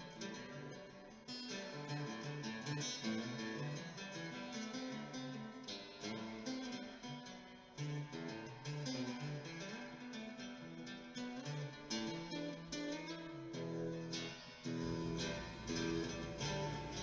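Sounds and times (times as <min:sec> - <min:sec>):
acoustic guitar looped pattern: 0:00.0 - 0:17.0.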